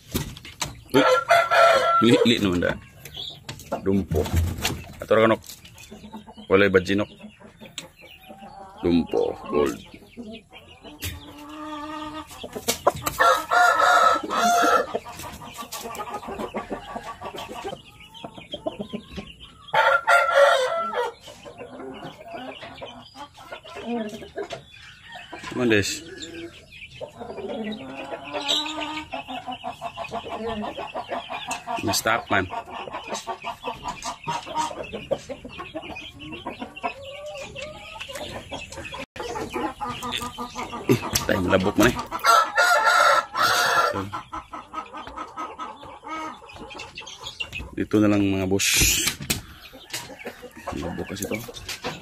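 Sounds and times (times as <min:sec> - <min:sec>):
soft clucks: 0:05.0 - 0:13.5, 0:14.4 - 0:19.4, 0:26.9 - 0:42.3, 0:43.9 - 0:52.0
rooster crowing: 0:13.2 - 0:14.9, 0:42.2 - 0:44.0.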